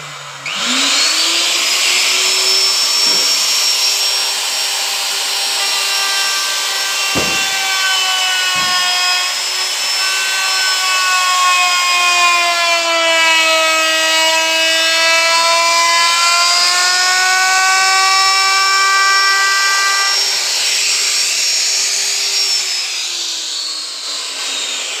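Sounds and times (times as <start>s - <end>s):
electric router whining: 0.0s - 20.5s
sharp knocks: 6.8s - 9.4s.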